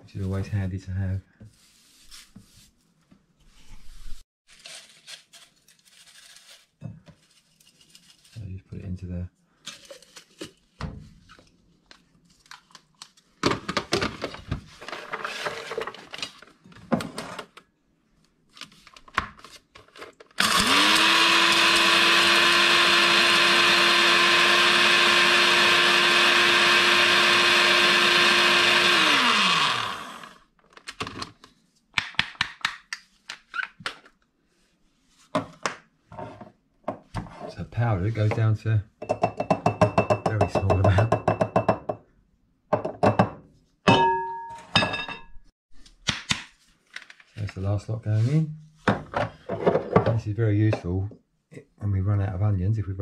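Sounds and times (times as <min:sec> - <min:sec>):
dry pieces crackling and rattling: 0:04.5 - 0:08.4
electric grinder whining: 0:20.4 - 0:30.4.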